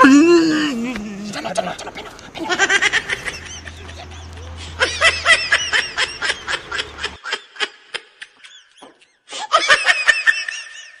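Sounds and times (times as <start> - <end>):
rapid high-pitched laughter: 1.5 - 8.8.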